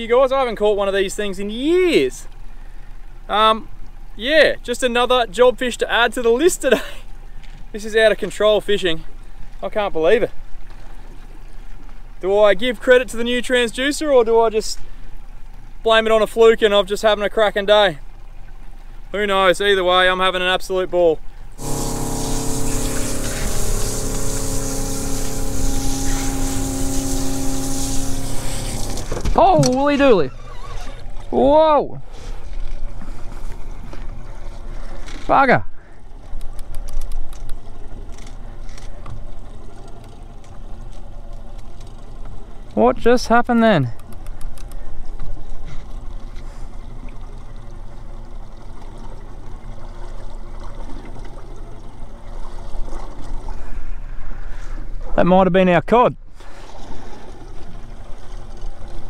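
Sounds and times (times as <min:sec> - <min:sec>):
water lapping against boat hull: 0:00.0 - 0:42.9, 0:43.5 - 0:55.2, 0:56.3 - 0:59.0
loud rushing hiss: 0:21.6 - 0:29.1
motor whining: 0:21.6 - 0:29.3.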